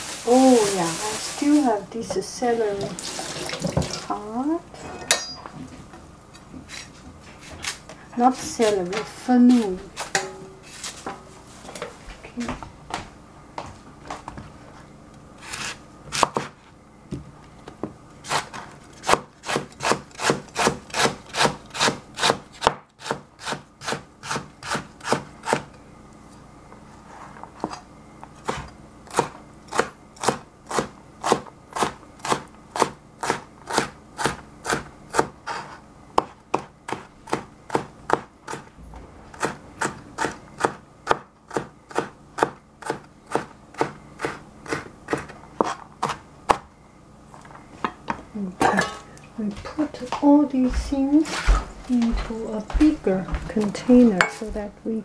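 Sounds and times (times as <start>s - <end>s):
knife chopping on plastic board: 18.3s - 25.7s, 36.2s - 38.7s.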